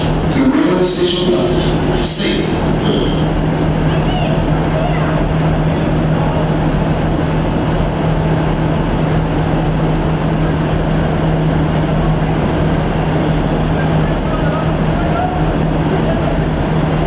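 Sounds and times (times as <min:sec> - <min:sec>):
diesel locomotive engine humming: 0:00.0 - 0:17.0.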